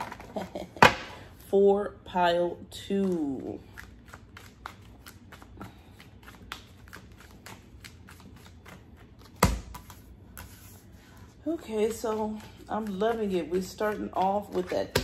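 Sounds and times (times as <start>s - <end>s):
cards being shuffled: 2.9s - 10.9s, 11.7s - 15.0s.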